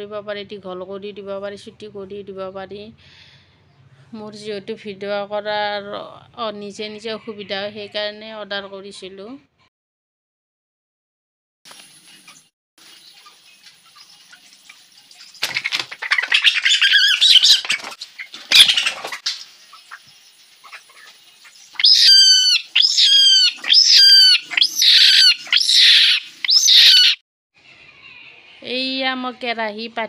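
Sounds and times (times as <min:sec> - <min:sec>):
wing flapping and scuffling: 0:11.7 - 0:22.0
hen squawking: 0:15.4 - 0:27.2.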